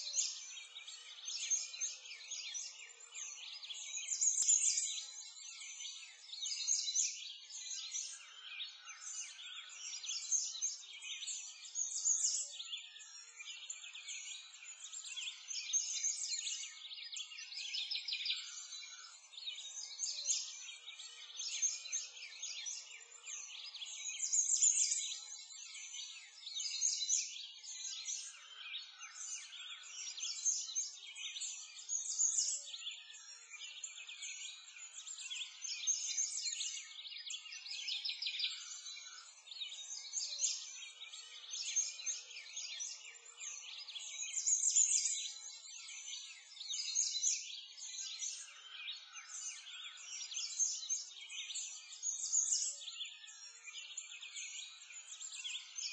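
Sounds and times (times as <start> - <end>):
songbirds chirping and singing: 0.0 - 55.9.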